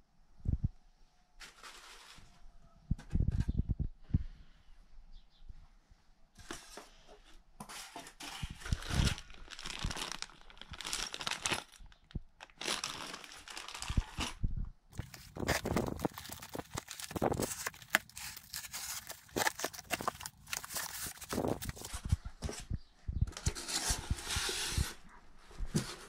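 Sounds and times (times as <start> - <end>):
plastic bag crinkling: 8.6 - 22.1
cardboard flaps scraping: 15.0 - 22.6.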